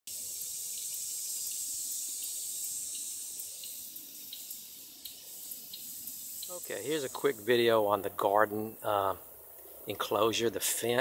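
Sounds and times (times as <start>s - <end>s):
high-pitched insect chorus: 1.2s - 7.9s.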